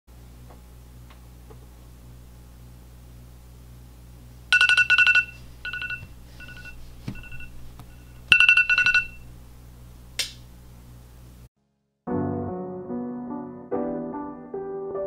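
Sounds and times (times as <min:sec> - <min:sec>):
phone alarm beeps: 0:04.6 - 0:09.2.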